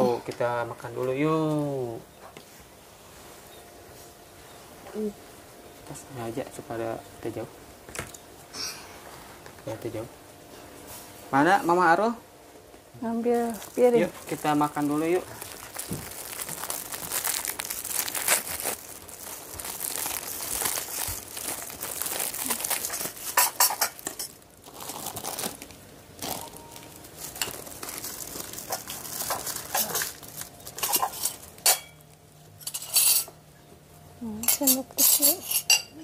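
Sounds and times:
food wrappers crinkling: 13.2 - 33.1
plates and dishes clattering: 23.2 - 24.4, 30.8 - 32.0.

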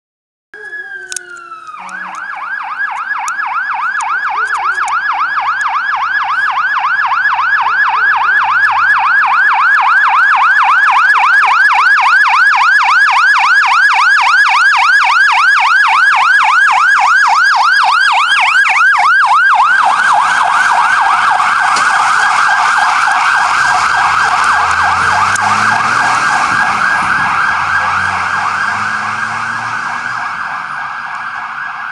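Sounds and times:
truck engine: 0.6 - 8.8, 17.4 - 31.9
fire truck siren yelping: 0.6 - 31.9.

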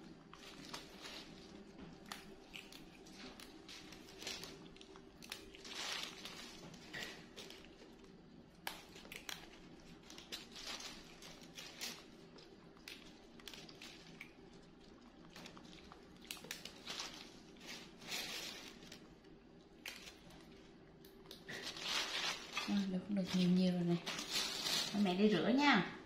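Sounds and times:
faint steady hum: 0.0 - 26.0
leaves rustling: 0.3 - 1.6, 3.1 - 7.7, 10.0 - 12.2, 16.5 - 19.1, 21.5 - 25.4
stems snapping: 2.0 - 7.8, 8.6 - 14.5, 15.2 - 19.0, 19.7 - 20.4.

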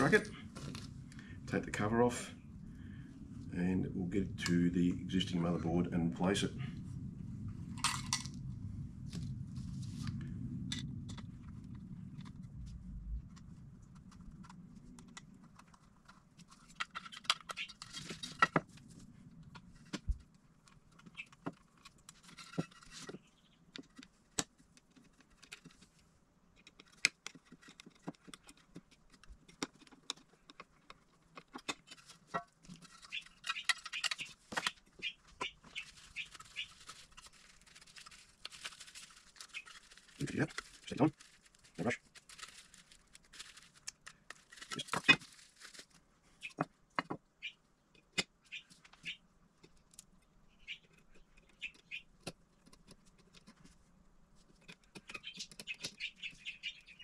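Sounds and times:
scratchy rubbing: 26.9 - 45.8.

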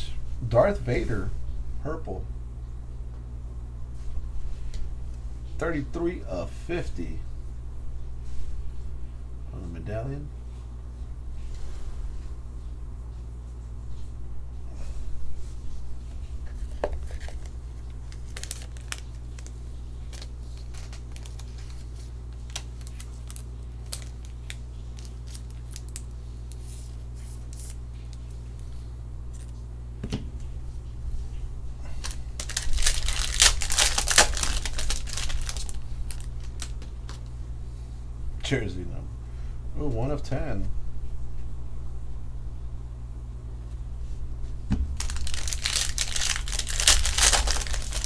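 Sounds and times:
low steady hum: 0.0 - 48.0
cards and wrappers rustling: 16.4 - 27.8, 31.9 - 37.3, 45.0 - 48.0
foil wrapper tearing: 16.5 - 27.8, 31.9 - 37.2, 45.0 - 48.0.

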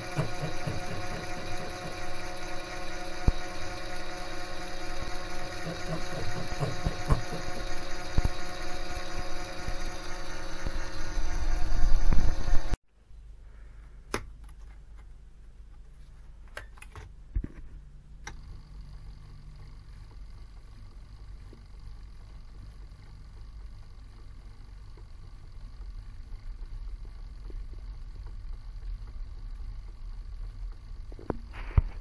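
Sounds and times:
lathe motor whine: 0.0 - 12.8.

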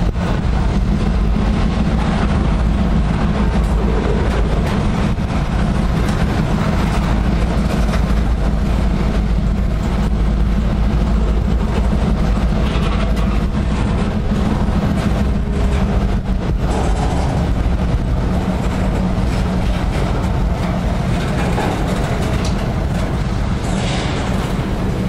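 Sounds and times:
freight cars rumbling on rails: 0.0 - 25.0
wheels clicking and clattering: 0.0 - 25.0.

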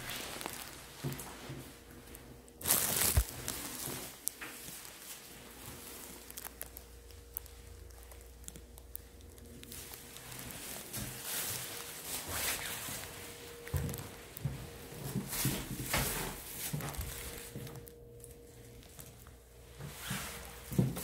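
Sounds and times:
faint steady hum: 0.0 - 21.0
footsteps: 9.7 - 17.9, 19.8 - 21.0.

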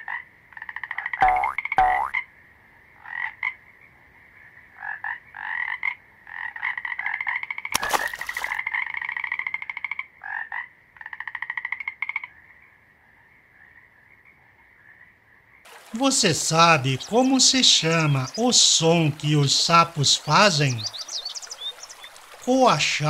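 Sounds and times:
frogs calling in pulsed trills: 0.1 - 2.3, 8.4 - 23.0.

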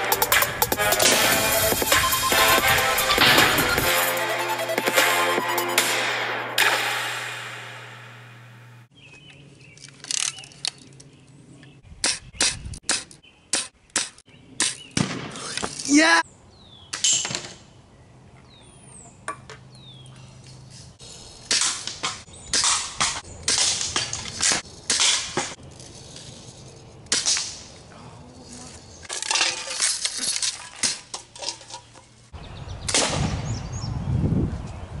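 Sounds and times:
birds chirping: 8.9 - 15.1, 15.9 - 21.4, 22.2 - 23.5.

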